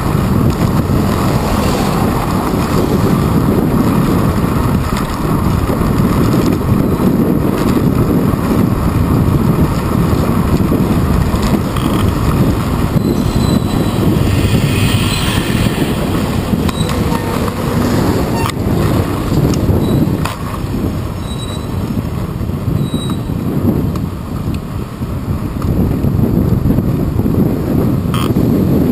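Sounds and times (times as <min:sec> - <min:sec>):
bicycle tyres rumbling: 0:00.0 - 0:28.9
city traffic: 0:00.0 - 0:28.9
wind rushing over microphone: 0:00.0 - 0:28.9
bus passing with hiss: 0:00.8 - 0:03.7, 0:13.0 - 0:19.3.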